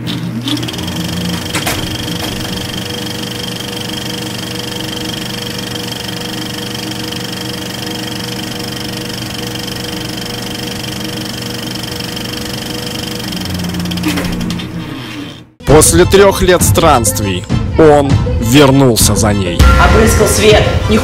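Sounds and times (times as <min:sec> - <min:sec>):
fast mechanical clatter: 0:00.4 - 0:15.4.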